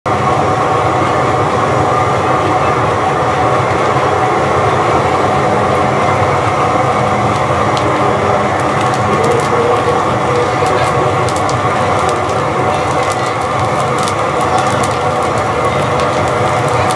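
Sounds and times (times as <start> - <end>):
corn popping and sizzling: 5.8 - 16.9.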